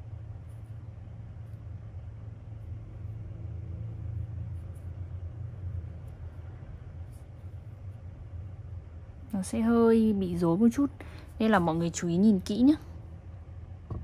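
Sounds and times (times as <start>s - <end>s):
steady low rumble: 0.0s - 14.0s.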